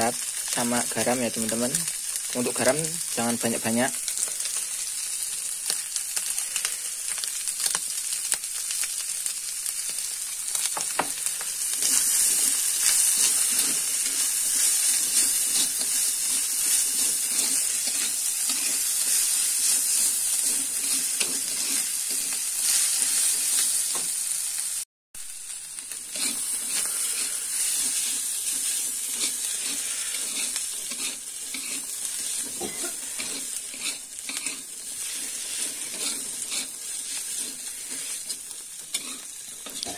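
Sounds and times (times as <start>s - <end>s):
food sizzling in a wok: 0.0s - 39.9s
metal spatula scraping a pan: 11.7s - 23.8s, 25.8s - 39.9s.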